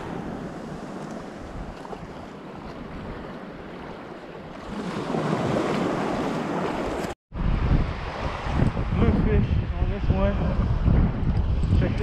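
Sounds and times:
ocean surf washing: 0.0 - 11.3
wind buffeting microphone: 4.6 - 12.0.

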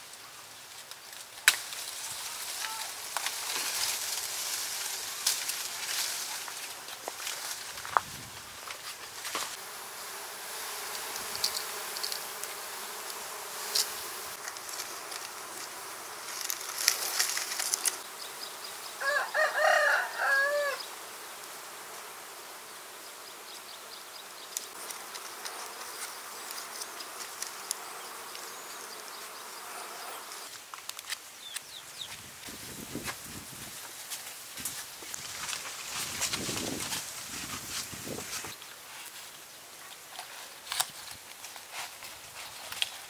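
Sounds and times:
rustling branch: 0.6 - 18.1, 24.5 - 28.8, 30.2 - 43.0
honeybees buzzing: 1.4 - 30.6, 34.6 - 38.9
rooster crowing: 19.0 - 20.9.

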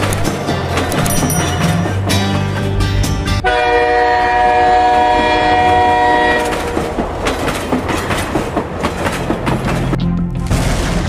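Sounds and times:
train horn: 3.4 - 6.9
train wheels clacking on rails: 5.0 - 10.0.

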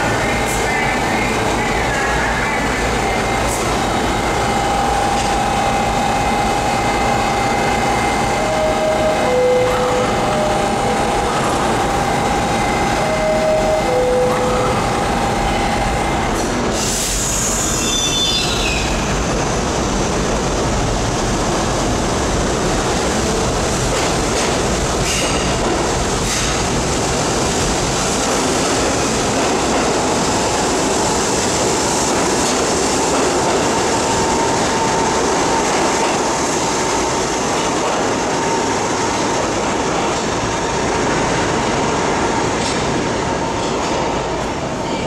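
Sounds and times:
train humming: 0.0 - 45.0
train wheels and motors rumbling: 0.0 - 45.0
air brake hiss: 16.4 - 18.2.

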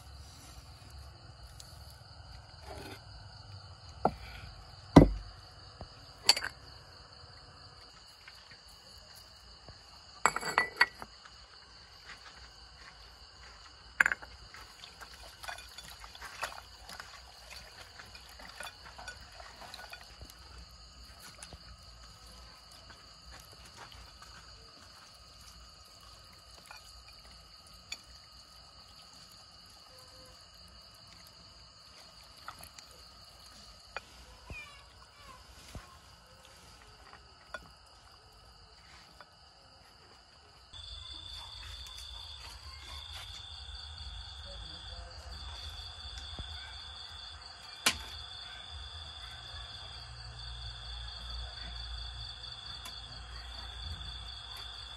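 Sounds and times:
insects chirring: 0.0 - 54.9
clinks against ceramic bowl: 10.2 - 11.0.

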